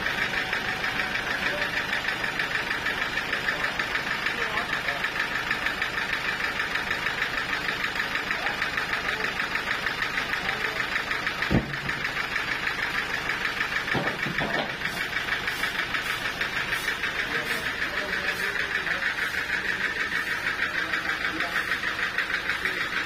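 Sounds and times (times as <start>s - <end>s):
sawmill engine throbbing: 0.0s - 23.0s
log thumping onto wooden skids: 11.5s - 12.0s, 13.9s - 14.8s.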